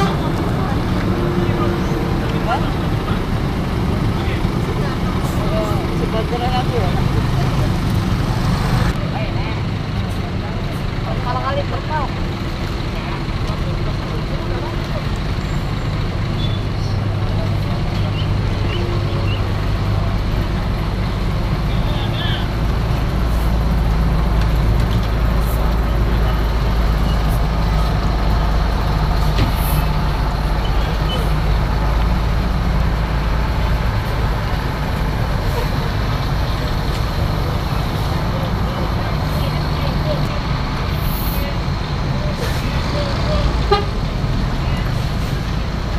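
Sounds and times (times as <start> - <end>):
diesel engine deep rumble: 0.0 - 45.9.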